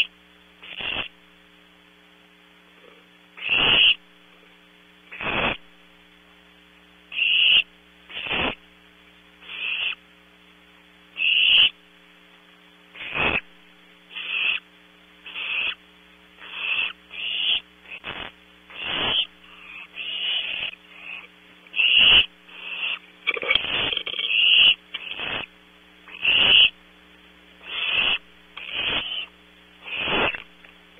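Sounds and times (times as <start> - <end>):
owlets hissing begging calls: 0.0 - 1.1, 3.4 - 4.0, 5.1 - 5.6, 7.1 - 8.6, 9.4 - 10.0, 11.2 - 11.8, 13.0 - 13.5, 14.1 - 15.8, 16.4 - 25.5, 26.1 - 26.8, 27.6 - 30.5
steady electrical hum: 0.0 - 30.9.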